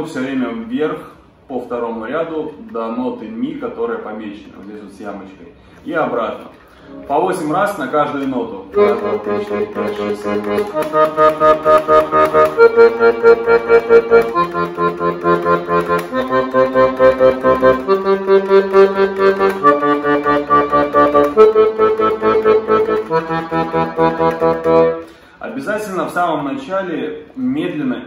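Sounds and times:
accordion bass notes: 0:06.8 - 0:25.6.

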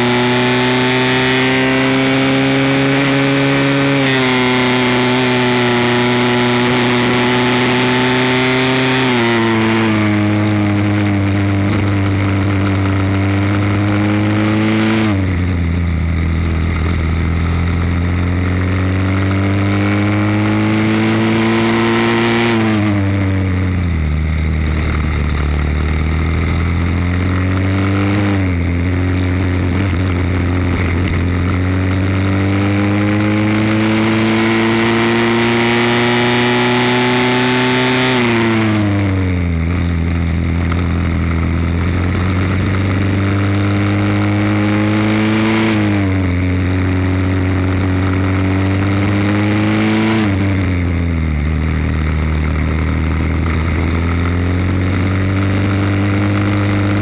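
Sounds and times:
kart engine at racing speed: 0:00.0 - 0:57.0.

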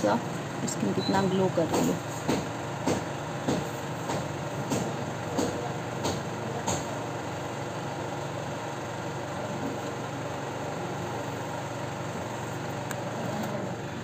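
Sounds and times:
sharp knocks: 0:01.7 - 0:06.9.

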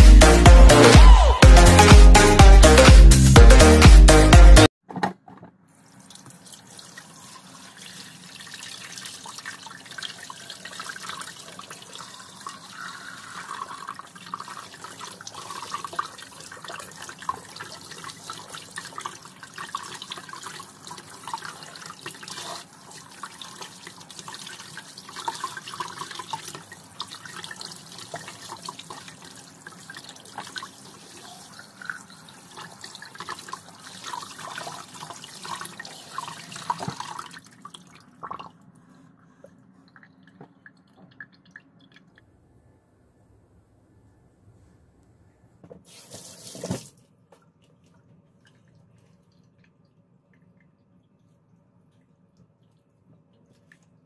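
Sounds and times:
faucet water running: 0:05.8 - 0:38.6, 0:45.9 - 0:46.9.

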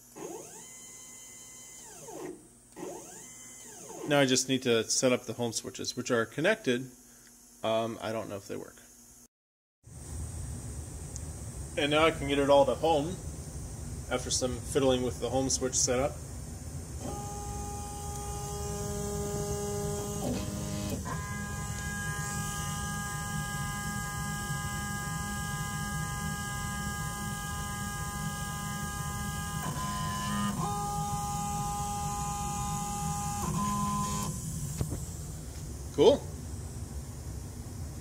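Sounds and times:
stepper motors whining: 0:00.0 - 0:04.4, 0:17.0 - 0:35.3.

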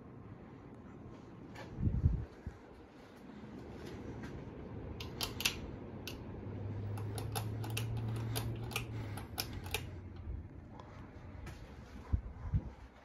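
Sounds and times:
ceiling fan motor humming: 0:00.0 - 0:13.0
light clicks and ticks: 0:06.9 - 0:10.9.

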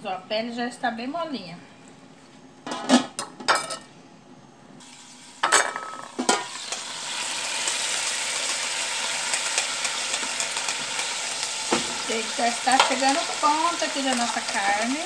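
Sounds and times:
hissing sizzle: 0:04.8 - 0:15.0
metal pot lid clanking: 0:05.4 - 0:06.8.

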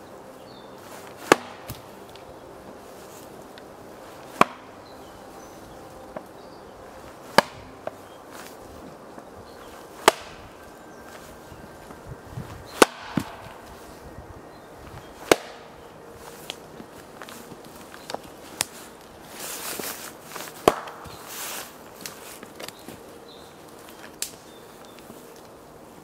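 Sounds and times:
axe chopping into wood: 0:01.2 - 0:01.8, 0:04.3 - 0:04.7, 0:07.3 - 0:08.0, 0:10.0 - 0:10.4, 0:12.7 - 0:13.5, 0:15.2 - 0:15.7, 0:20.6 - 0:21.0.

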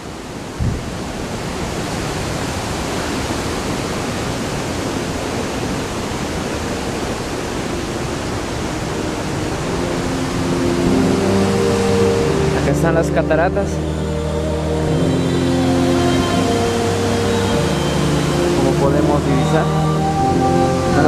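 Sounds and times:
waterfall roaring: 0:00.0 - 0:21.0.

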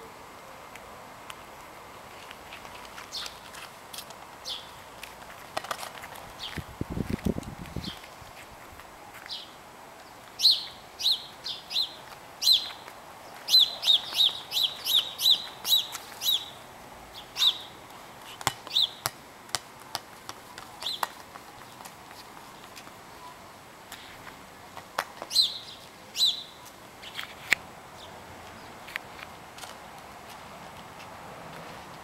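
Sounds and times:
bird chirping: 0:04.4 - 0:04.8, 0:09.2 - 0:17.8, 0:18.7 - 0:19.0, 0:25.3 - 0:27.3.

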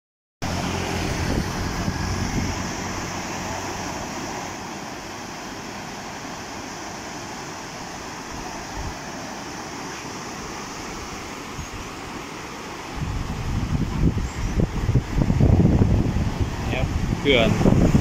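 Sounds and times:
floodwater rushing: 0:00.4 - 0:18.0
wind buffeting microphone: 0:00.5 - 0:04.2, 0:12.9 - 0:18.0.

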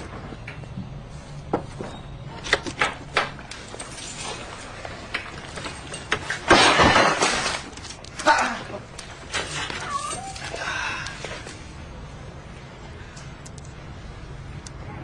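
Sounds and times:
loud crash: 0:06.4 - 0:07.7.

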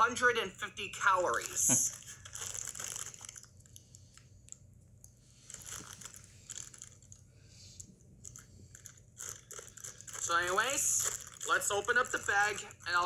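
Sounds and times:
low steady hum: 0:00.0 - 0:13.0
foil chip bag crinkling: 0:01.3 - 0:03.8, 0:05.4 - 0:07.2, 0:08.2 - 0:13.0.

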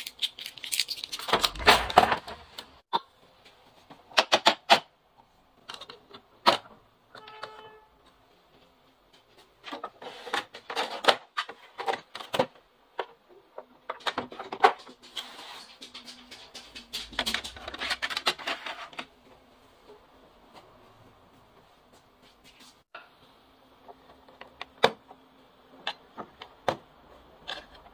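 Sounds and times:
plastic printer trays clicking and scraping: 0:01.2 - 0:02.7, 0:09.6 - 0:19.1
short tone: 0:07.2 - 0:07.9.

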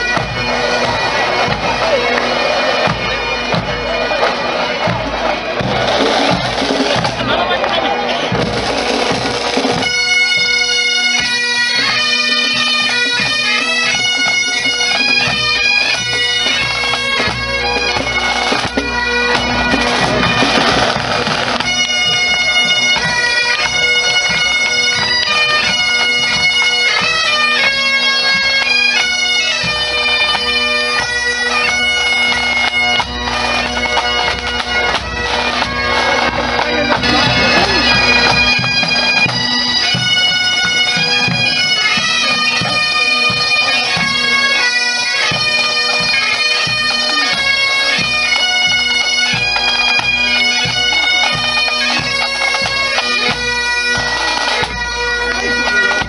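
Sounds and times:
bagpipes playing: 0:00.0 - 0:56.0
drums: 0:02.6 - 0:09.9, 0:18.0 - 0:22.4.

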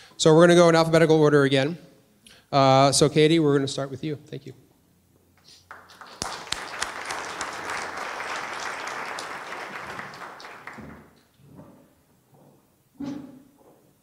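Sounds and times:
audience applauding: 0:05.7 - 0:11.2.

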